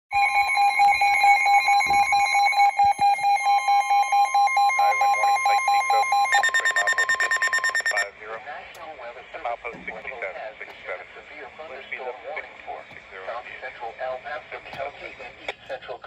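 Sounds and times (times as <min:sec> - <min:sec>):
rapid electronic beeps: 0:00.1 - 0:08.1
steady warning tone: 0:00.1 - 0:08.2.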